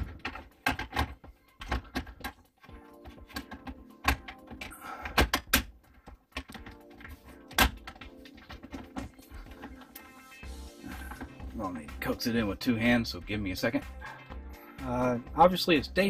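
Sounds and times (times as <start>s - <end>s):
plastic trim clicks and knocks: 0.0s - 2.4s, 3.2s - 6.8s.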